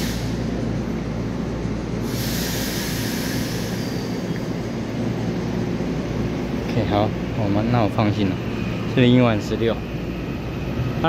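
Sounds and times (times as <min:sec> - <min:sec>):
train wheels rumbling: 0:00.0 - 0:11.0
hissing burst: 0:02.0 - 0:04.2.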